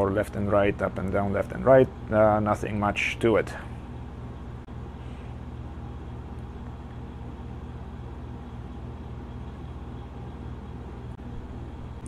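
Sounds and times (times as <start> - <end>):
steady low pulsing hum: 0.0 - 12.0.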